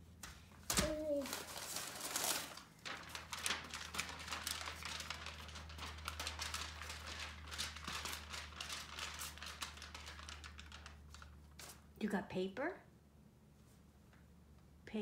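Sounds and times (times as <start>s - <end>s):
paper rustling and crackling: 0.2s - 12.0s.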